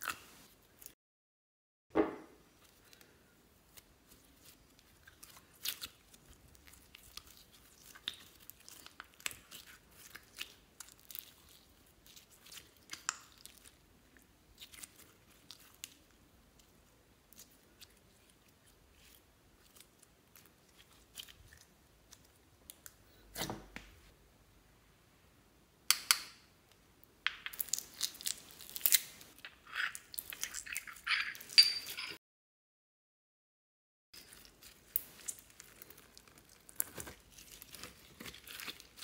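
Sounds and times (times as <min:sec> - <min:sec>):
slime squelching: 0:03.7 - 0:23.4, 0:34.2 - 0:39.0
slime crackling and popping: 0:27.6 - 0:29.4, 0:34.6 - 0:39.0.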